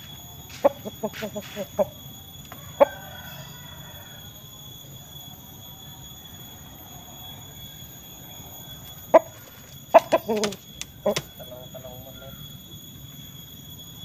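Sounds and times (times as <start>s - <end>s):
rooster cluck: 0.6s - 1.9s, 10.0s - 12.4s
faint drawn-out rooster call: 2.5s - 4.6s.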